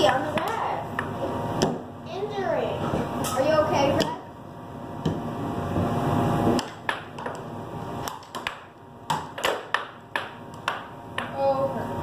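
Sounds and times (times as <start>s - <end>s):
air hockey puck knocking: 6.6s - 7.4s, 8.0s - 11.4s.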